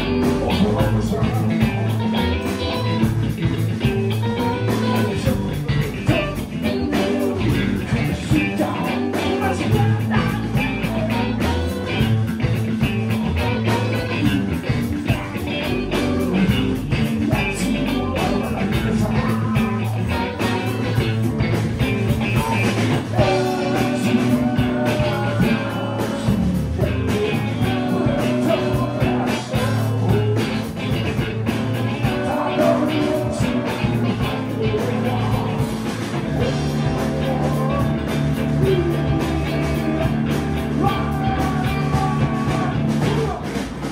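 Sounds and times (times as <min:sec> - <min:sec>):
drum kit: 0:00.0 - 0:43.9
electric guitars: 0:00.0 - 0:43.9
singer singing: 0:00.0 - 0:43.9.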